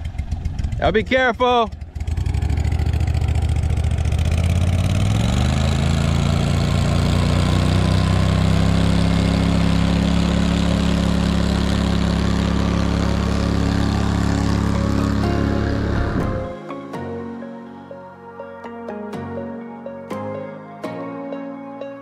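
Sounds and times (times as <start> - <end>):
outboard motor: 0.0 - 16.6.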